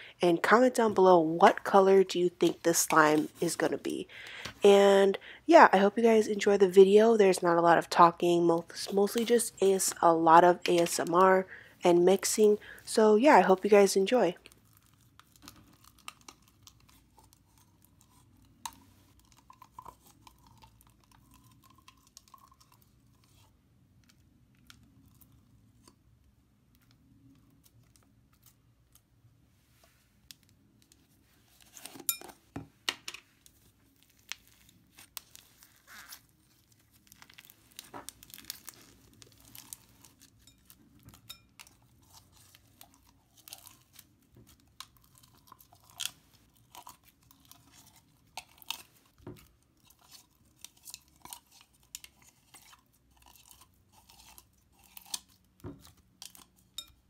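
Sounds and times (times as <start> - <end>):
slime crackling and popping: 14.5 - 22.9, 33.9 - 56.9.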